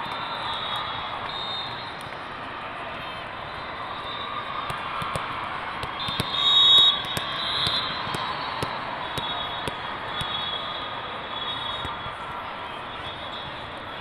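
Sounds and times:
volleyballs being hit: 0:04.7 - 0:10.4.

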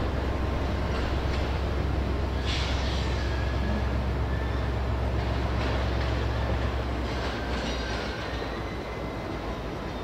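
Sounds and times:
clatter over rail joints: 0:00.0 - 0:03.4, 0:05.1 - 0:08.5
train wheels rumbling on rail: 0:00.0 - 0:10.0.

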